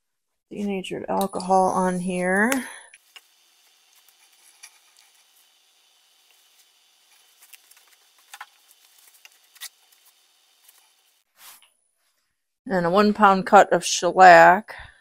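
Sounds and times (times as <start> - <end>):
paper towel wiping: 3.1 - 11.6.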